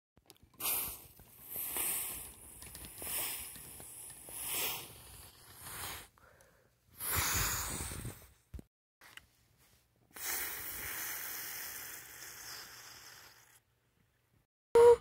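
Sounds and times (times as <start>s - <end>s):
person breathing: 0.7s - 8.4s, 10.1s - 13.6s.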